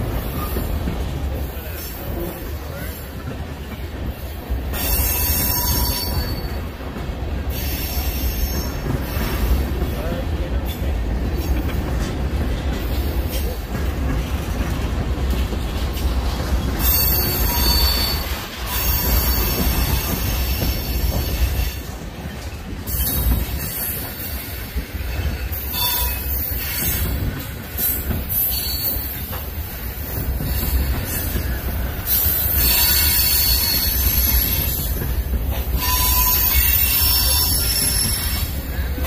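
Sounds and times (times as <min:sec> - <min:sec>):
train rumble: 0:00.0 - 0:39.0
steel wheels squealing: 0:04.7 - 0:06.7, 0:07.5 - 0:09.6, 0:16.7 - 0:21.8, 0:22.8 - 0:35.0, 0:35.7 - 0:39.0.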